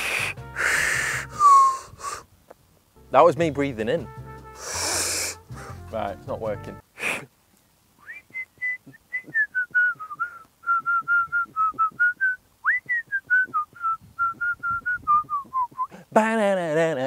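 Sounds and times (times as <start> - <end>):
person whistling: 0.0 - 1.9, 8.0 - 16.0.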